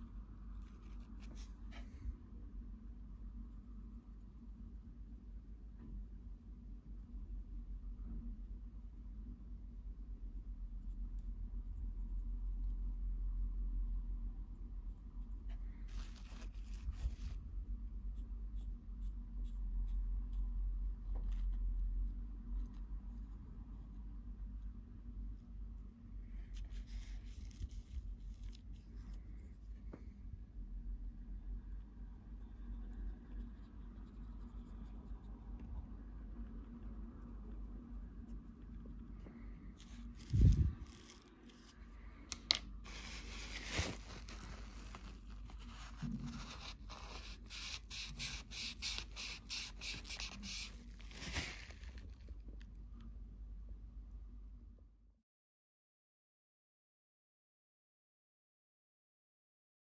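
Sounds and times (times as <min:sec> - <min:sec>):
low steady hum: 0:00.0 - 0:55.2
paintbrush scrubbing plastic: 0:15.3 - 0:17.5, 0:26.3 - 0:29.8, 0:42.8 - 0:52.4
paper towel wiping plastic: 0:15.7 - 0:17.5, 0:26.5 - 0:29.1, 0:42.8 - 0:52.2.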